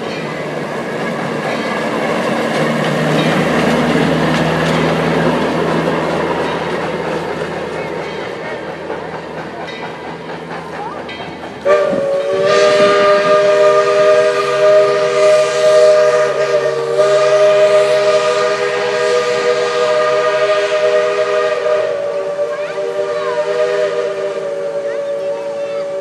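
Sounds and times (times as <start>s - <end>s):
train running along track: 0.0s - 26.0s
steam locomotive whistle blast: 11.6s - 26.0s.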